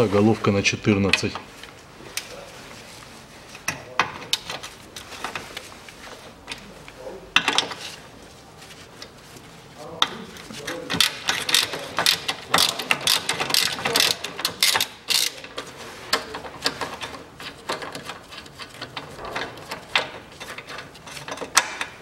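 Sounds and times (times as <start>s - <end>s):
ratchet wrench clicking: 11.0s - 15.4s.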